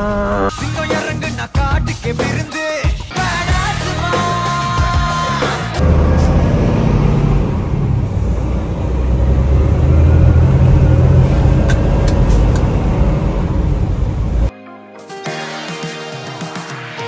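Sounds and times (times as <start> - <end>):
truck engine and road rumble: 5.8 - 14.5.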